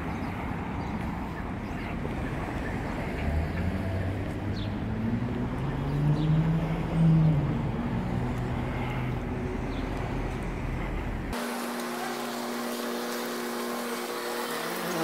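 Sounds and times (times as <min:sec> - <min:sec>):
low traffic rumble: 0:00.0 - 0:15.0
passing vehicle engine hum: 0:01.8 - 0:11.4.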